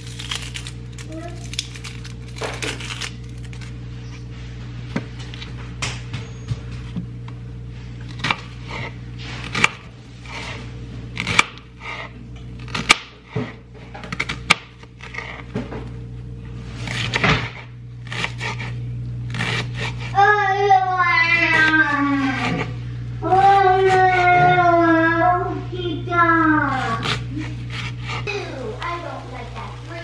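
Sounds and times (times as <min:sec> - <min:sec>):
steady low hum: 0:00.0 - 0:30.0
knife cutting on plastic board: 0:16.7 - 0:20.2, 0:21.2 - 0:24.7, 0:26.4 - 0:28.3.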